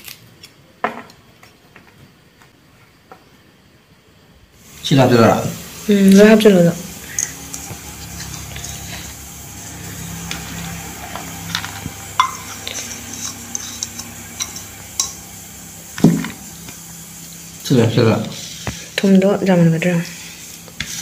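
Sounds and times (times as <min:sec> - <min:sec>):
steel bowl scraping a plate: 0:07.0 - 0:15.3, 0:20.0 - 0:21.0.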